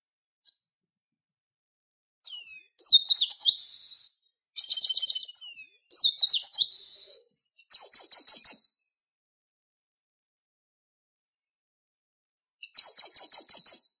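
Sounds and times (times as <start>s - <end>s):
bird song whistled notes: 2.2s - 9.0s, 12.4s - 14.0s.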